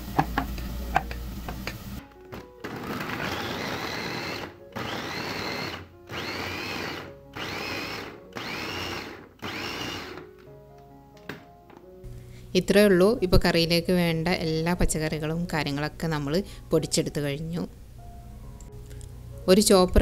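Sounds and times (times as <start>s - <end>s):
electric food chopper whining: 2.4s - 10.3s.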